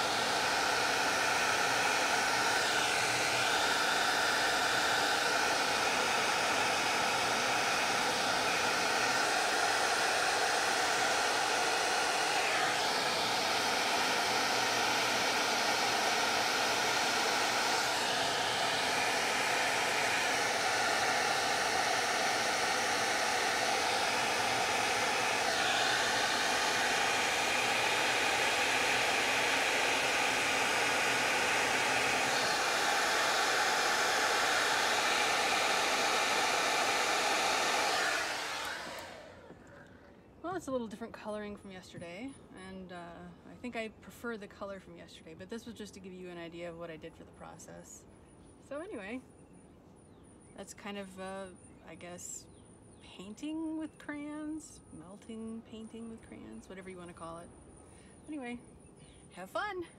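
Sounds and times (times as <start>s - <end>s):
hair dryer blowing air: 0.0s - 39.9s.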